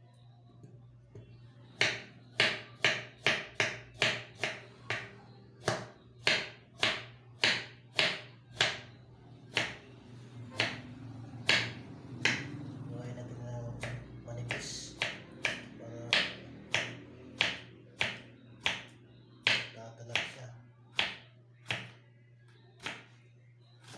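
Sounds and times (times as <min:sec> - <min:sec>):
knife chopping on wooden board: 0:01.8 - 0:08.8, 0:09.5 - 0:09.8, 0:10.6 - 0:10.8, 0:11.4 - 0:12.5, 0:13.8 - 0:20.3, 0:20.9 - 0:22.0.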